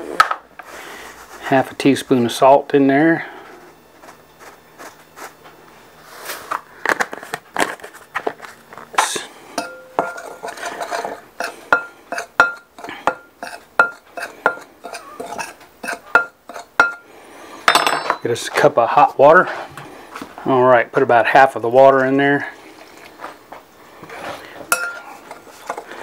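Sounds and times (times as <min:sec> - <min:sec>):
metal spoon scraping through flour: 0:09.6 - 0:17.1, 0:24.1 - 0:26.0
spoon clinking against glass bowl: 0:24.7 - 0:25.1.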